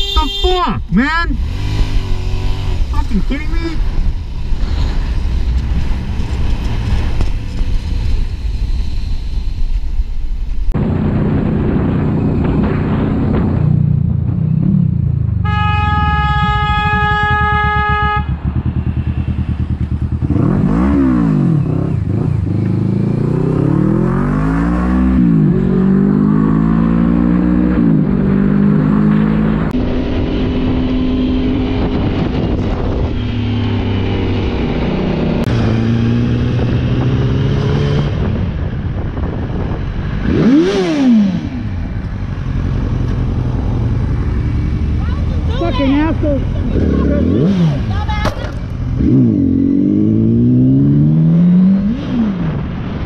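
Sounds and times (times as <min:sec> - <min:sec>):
car horn: 0:00.0 - 0:00.9, 0:15.4 - 0:19.0
motorcycle engines revving: 0:00.0 - 0:08.7, 0:10.8 - 0:53.0.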